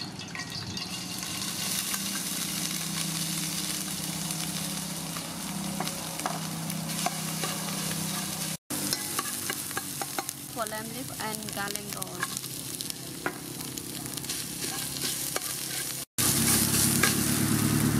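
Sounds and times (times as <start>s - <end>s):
spice paste sizzling in oil: 0.2s - 17.9s
metal ladle scraping pot: 14.6s - 17.2s.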